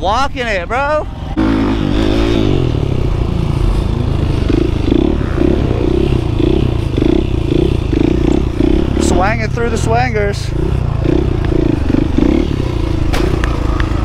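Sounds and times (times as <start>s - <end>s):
motorcycle engine running: 0.9s - 14.0s.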